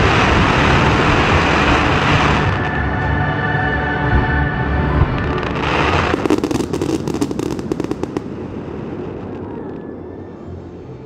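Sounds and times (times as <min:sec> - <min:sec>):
fireworks bursting and crackling: 0:00.0 - 0:02.8, 0:05.0 - 0:10.0.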